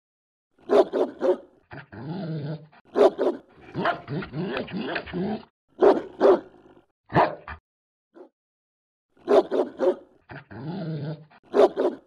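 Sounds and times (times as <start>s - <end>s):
dog barking sharply: 0.7s - 1.5s, 2.9s - 4.1s, 5.8s - 6.5s, 7.1s - 7.6s, 9.3s - 10.0s, 11.5s - 12.0s
dog growling: 10.3s - 11.5s.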